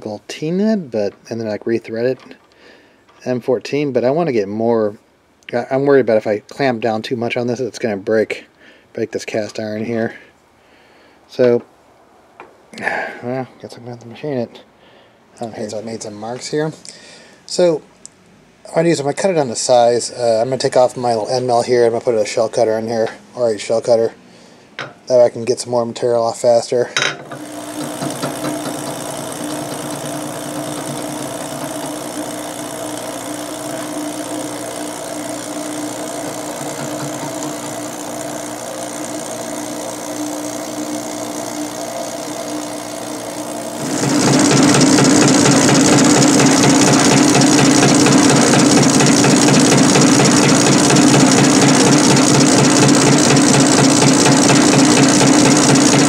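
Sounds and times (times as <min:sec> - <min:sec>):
milling machine spindle humming: 0:27.2 - 0:56.0
hissing metal cutting noise: 0:27.4 - 0:56.0.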